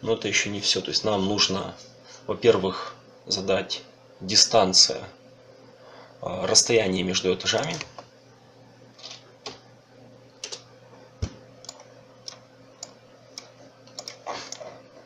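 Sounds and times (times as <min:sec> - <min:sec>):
faint steady hum: 0:00.0 - 0:15.0
computer mouse and keyboard clicks: 0:07.6 - 0:08.0, 0:11.2 - 0:14.8.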